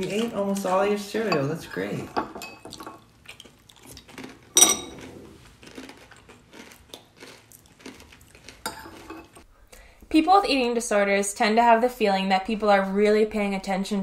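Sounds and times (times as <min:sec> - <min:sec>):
spoons clinking in ceramic bowls: 0:04.6 - 0:05.1.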